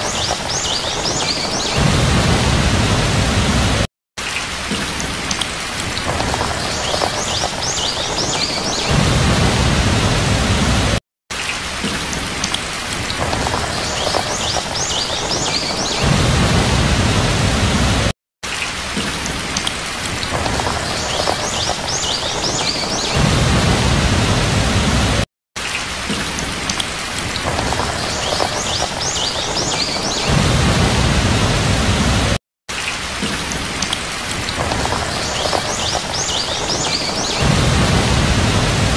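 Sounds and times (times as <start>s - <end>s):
thunder rumbling: 0.0s - 3.9s, 5.8s - 11.0s, 12.9s - 18.1s, 20.1s - 25.2s, 27.4s - 32.4s, 34.3s - 38.9s
heavy rain: 0.0s - 38.9s.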